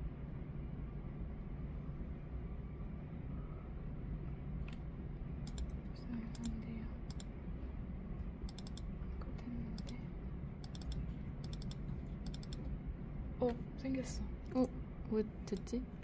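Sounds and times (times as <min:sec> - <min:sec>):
low room hum: 0:00.0 - 0:16.0
computer keyboard typing: 0:05.4 - 0:07.3, 0:08.5 - 0:08.9, 0:09.7 - 0:10.0, 0:10.6 - 0:12.7.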